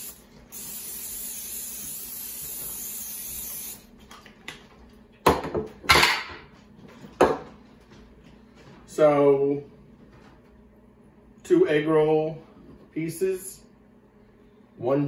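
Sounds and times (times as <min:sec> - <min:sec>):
aerosol spray hissing: 0:00.0 - 0:03.9.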